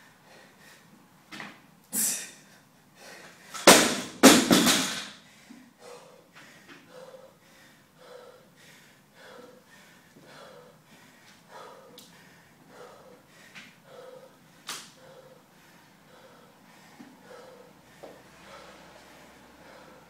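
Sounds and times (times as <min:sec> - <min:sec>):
barbell bang on floor mat: 0:03.6 - 0:05.1
heavy breathing: 0:05.2 - 0:20.0.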